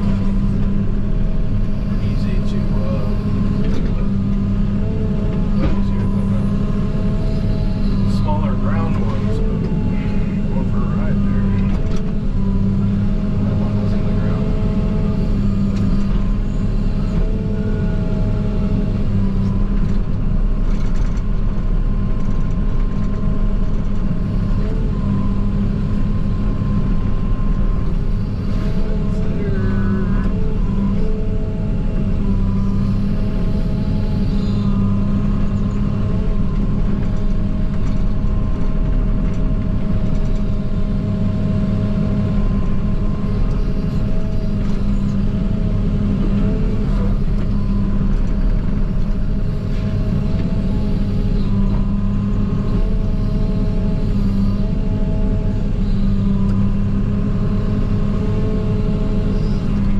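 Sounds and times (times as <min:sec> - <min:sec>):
diesel engine running under load: 0:00.0 - 0:59.9
whining tones: 0:00.0 - 0:59.9.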